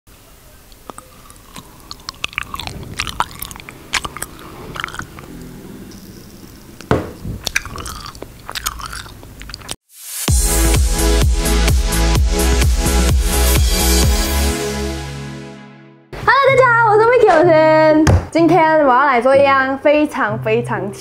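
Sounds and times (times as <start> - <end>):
person chewing close to microphone: 0.6 - 9.8
lip and teeth smacks: 0.7 - 6.6, 7.4 - 9.8.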